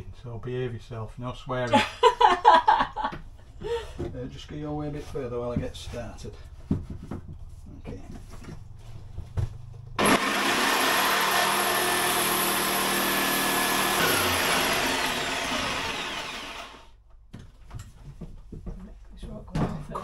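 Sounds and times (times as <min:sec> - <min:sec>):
electric power saw cutting: 0:10.0 - 0:17.0.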